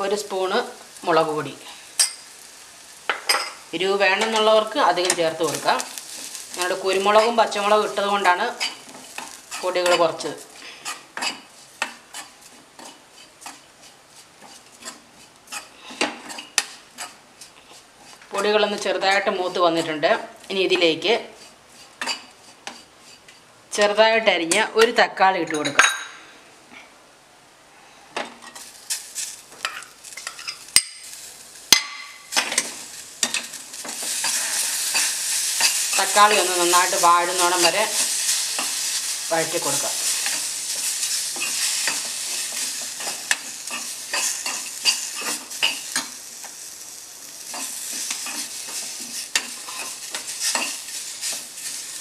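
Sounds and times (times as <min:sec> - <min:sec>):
frying sizzle: 0:00.0 - 0:24.6, 0:28.4 - 0:52.0
spoon scraping metal pan: 0:04.2 - 0:17.2, 0:32.0 - 0:46.2, 0:47.5 - 0:52.0.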